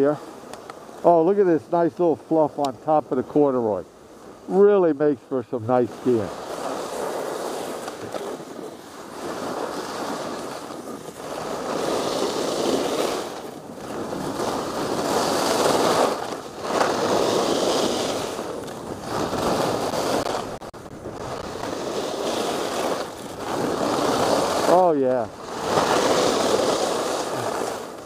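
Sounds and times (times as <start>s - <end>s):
skis scraping over snow: 0.0s - 28.0s
wind on microphone: 5.9s - 28.0s.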